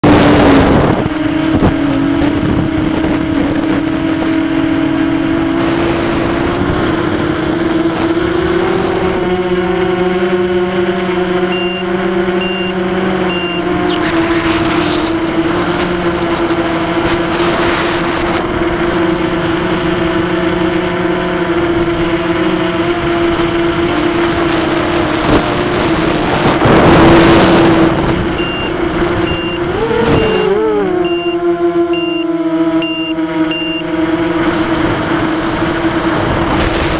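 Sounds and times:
quadcopter motors whining: 0.1s - 36.9s
short high beeps: 11.5s - 13.7s, 28.4s - 33.9s
wind noise rush: 36.0s - 36.9s.

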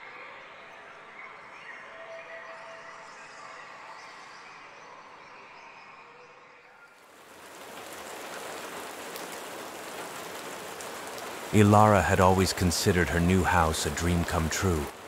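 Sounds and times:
steady rain: 6.9s - 15.0s.

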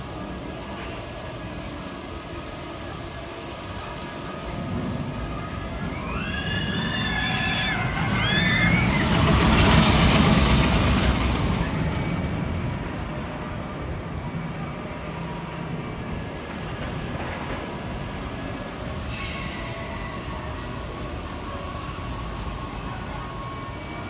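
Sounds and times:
roller coaster train rumbling: 0.0s - 24.0s
riders screaming: 5.7s - 9.6s.

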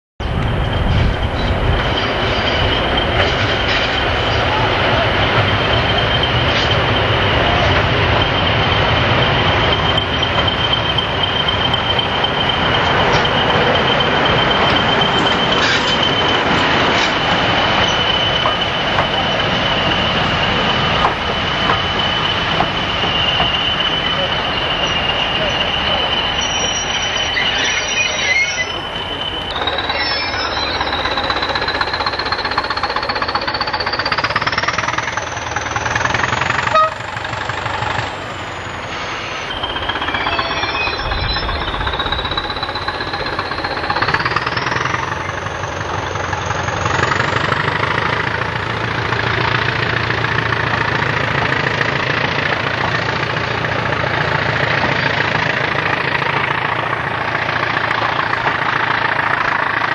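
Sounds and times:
diesel locomotive engine working hard: 0.2s - 59.9s
train clatter: 0.2s - 59.9s
turbocharger whistle rising: 0.5s - 48.1s.

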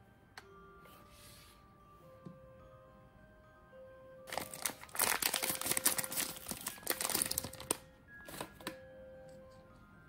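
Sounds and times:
foil bag crinkling: 4.3s - 8.4s.

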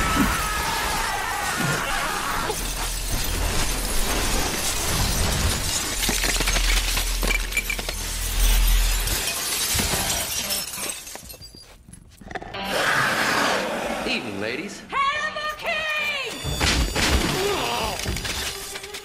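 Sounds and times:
debris crashing down: 0.0s - 11.4s
glass shattering: 0.0s - 11.8s, 16.3s - 19.0s.

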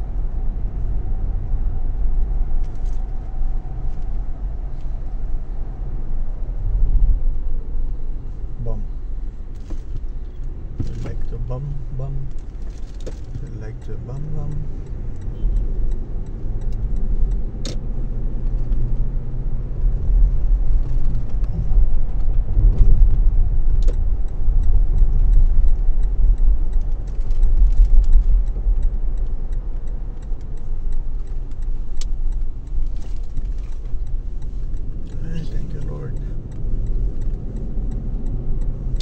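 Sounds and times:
car engine and tyres rumbling: 0.0s - 39.0s.

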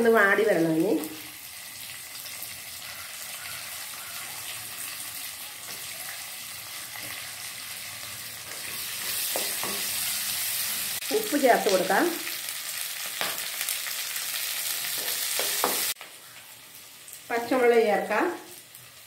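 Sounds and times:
onions sizzling in oil: 0.0s - 19.0s
spatula stirring in pan: 5.6s - 10.6s.

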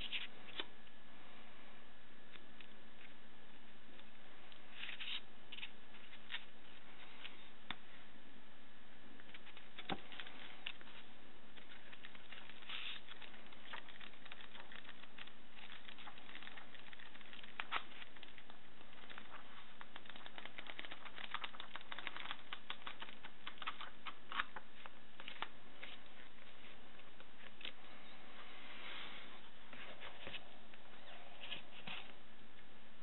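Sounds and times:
paper crackling and pages tapping: 9.2s - 27.8s.

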